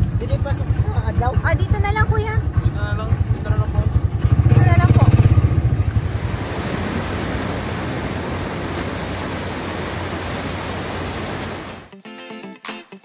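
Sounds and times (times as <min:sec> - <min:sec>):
waves washing up beach: 0:04.4 - 0:11.9
music: 0:11.9 - 0:13.0.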